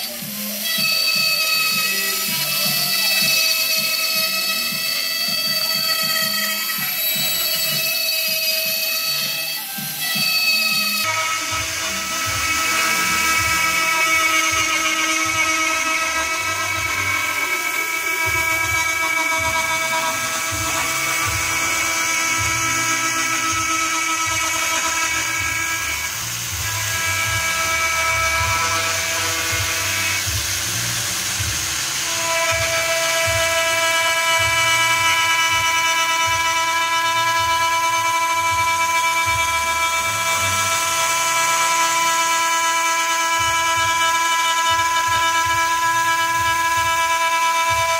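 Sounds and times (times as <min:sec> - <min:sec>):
end mill cutting metal: 0:00.0 - 0:47.9
milling machine whine: 0:00.0 - 0:47.9.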